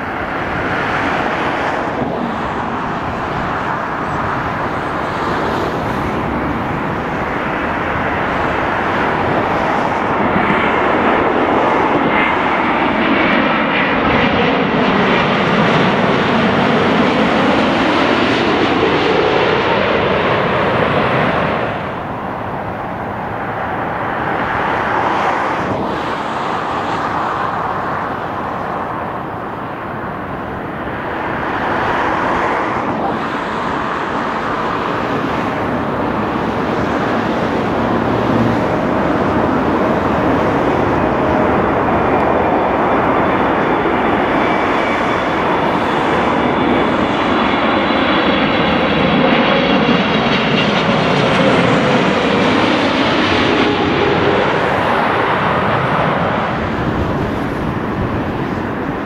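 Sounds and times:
jet airliner passing overhead: 0.0 - 59.0
jet engine roar with whining: 0.0 - 59.0.

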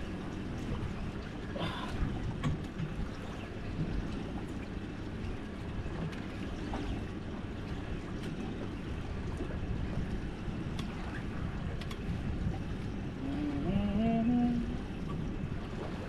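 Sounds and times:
sea water around boat: 0.0 - 16.0
wind on microphone: 8.1 - 16.0.

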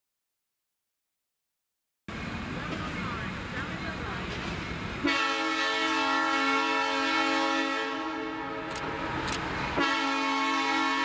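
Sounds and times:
train horn blowing: 5.0 - 8.7, 9.8 - 11.0.

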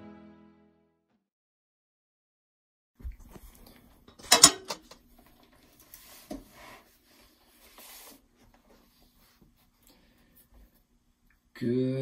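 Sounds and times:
objects clattering on desk: 4.1 - 5.0
rustles and shuffles: 5.1 - 11.0.

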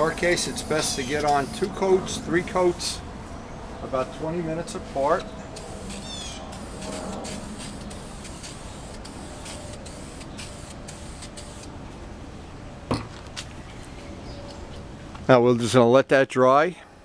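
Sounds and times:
aerosol spray can hissing: 5.6 - 11.7.

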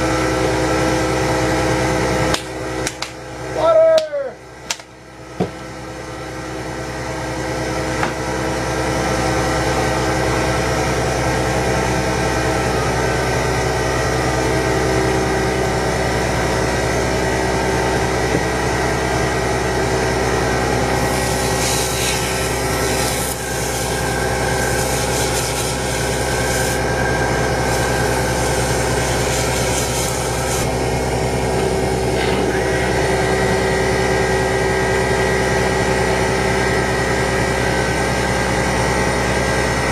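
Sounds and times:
lathe motor whine: 5.5 - 39.9
turning tool scraping: 21.0 - 30.7.

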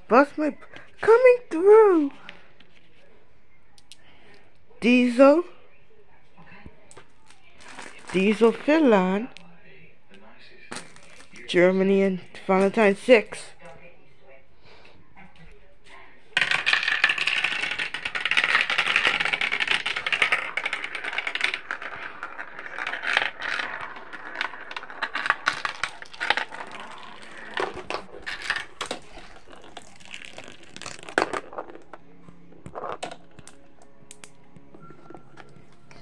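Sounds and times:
marbles rattling down plastic run: 7.6 - 8.9, 16.4 - 31.9
plastic pieces clicking: 16.4 - 32.0, 32.6 - 34.4.

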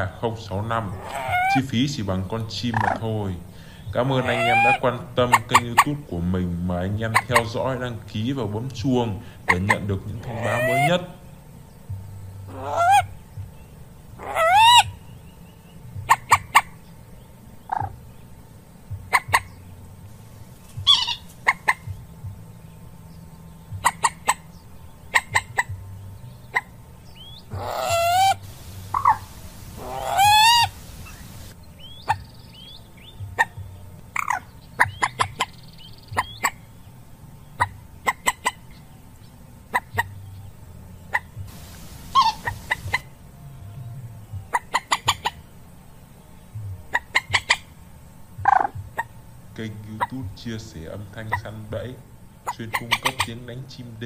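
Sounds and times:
moorhen calling: 0.0 - 54.0
sharp clicking bird notes: 17.6 - 18.0, 26.5 - 36.6, 41.1 - 43.0.

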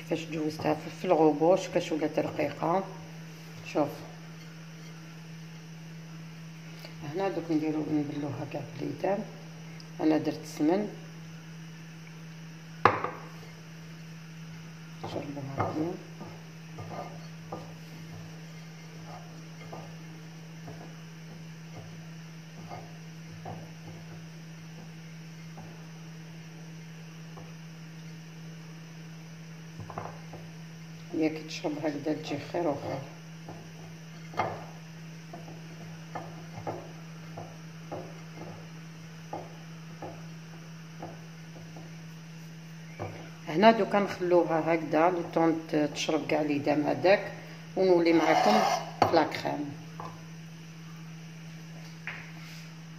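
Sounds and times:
low electrical hum: 0.0 - 52.9
dough rustling: 15.0 - 30.7.

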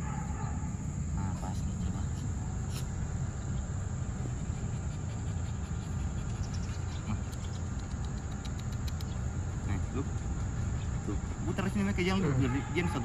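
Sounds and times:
faint ticks: 6.2 - 9.2.

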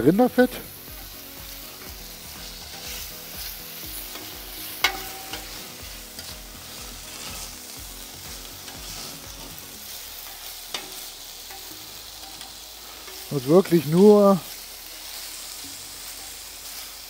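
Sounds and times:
meat sizzling on a griddle: 0.0 - 17.0
metal tongs scraping: 1.8 - 3.2, 4.0 - 7.7, 8.4 - 16.4
tongs clinking on metal plate: 4.1 - 6.4, 10.7 - 14.0.

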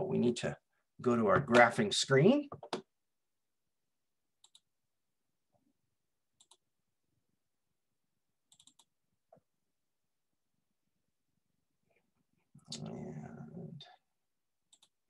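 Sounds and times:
computer mouse clicks: 4.4 - 4.7, 6.4 - 6.6, 8.5 - 8.9, 14.7 - 15.0.

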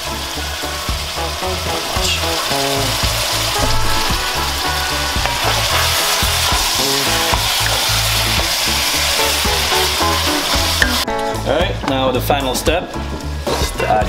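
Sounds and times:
food sizzling in a pot: 0.0 - 11.1
background music with bass beat: 0.0 - 14.0.

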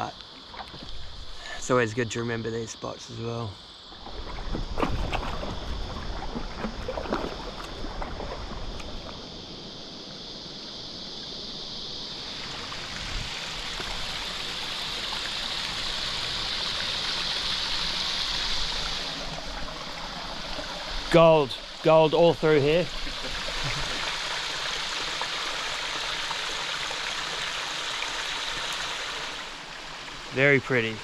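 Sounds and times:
light water splashes: 3.9 - 9.3
wind rumbling on microphone: 4.0 - 11.0, 12.3 - 14.5
creek water rushing over rocks: 12.2 - 31.0.

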